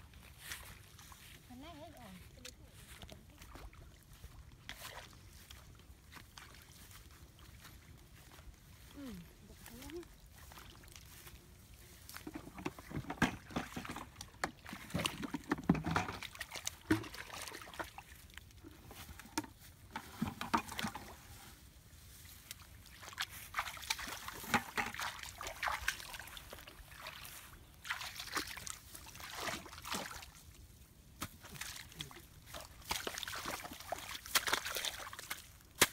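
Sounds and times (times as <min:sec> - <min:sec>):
hands splashing in muddy puddle: 0:13.6 - 0:19.3, 0:22.3 - 0:35.9.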